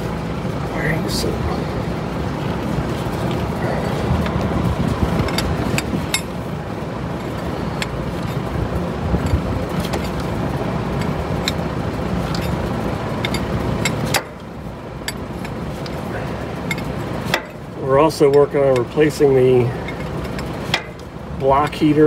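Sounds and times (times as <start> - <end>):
big fan running: 0.0 - 22.0.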